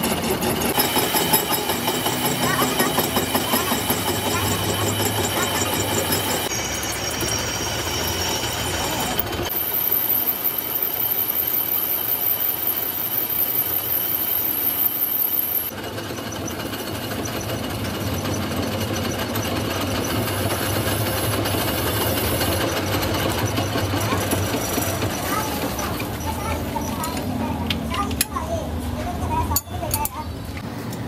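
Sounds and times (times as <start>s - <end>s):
metal lathe cutting: 0.7s - 15.7s
high wavering cutting squeal: 0.7s - 27.2s.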